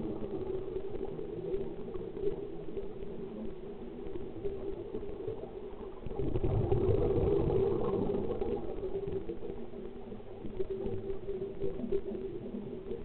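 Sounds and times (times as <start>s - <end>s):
gurgling rush of bubbles: 0.0s - 13.0s.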